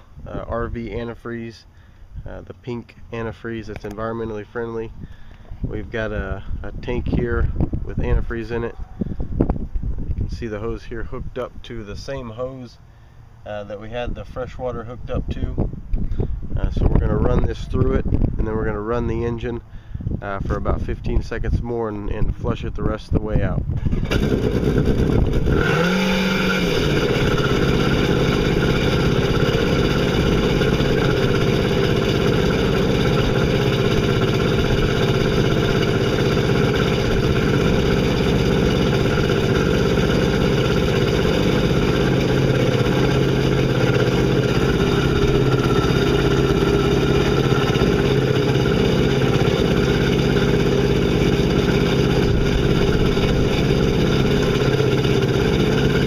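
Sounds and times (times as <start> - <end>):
boat engine idling: 24.0 - 56.0.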